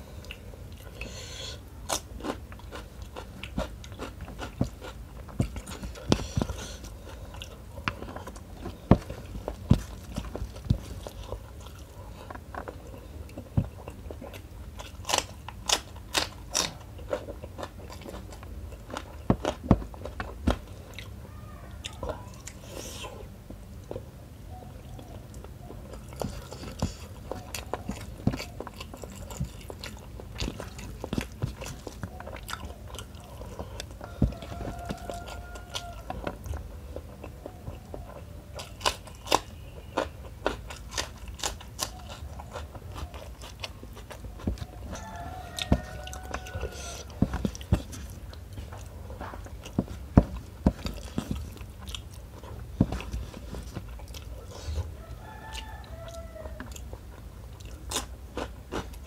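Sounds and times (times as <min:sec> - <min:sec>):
close-miked chewing: 0:00.0 - 0:59.0
crunchy bites: 0:14.7 - 0:21.1, 0:38.6 - 0:54.3.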